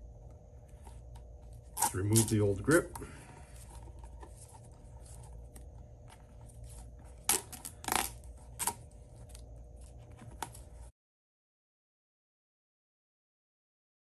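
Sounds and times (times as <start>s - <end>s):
grip tape crackling: 0.7s - 10.9s
tape ripping: 1.6s - 2.8s, 6.6s - 9.4s.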